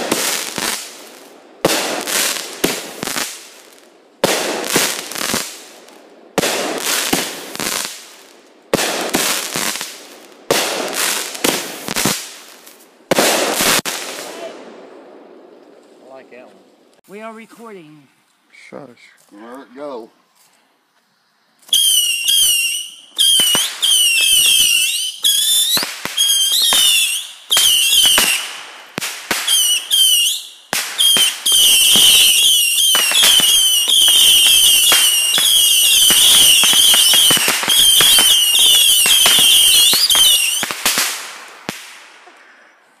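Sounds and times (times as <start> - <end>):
firework cracks: 0.0 - 15.1, 21.7 - 42.5
shrill firework whistles: 21.6 - 28.5, 29.4 - 40.8.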